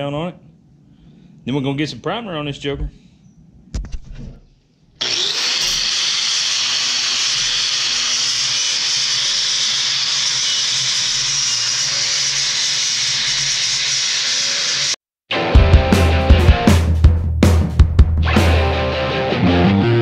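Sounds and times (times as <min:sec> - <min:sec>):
angle grinder grinding steel: 0:05.0 - 0:15.0.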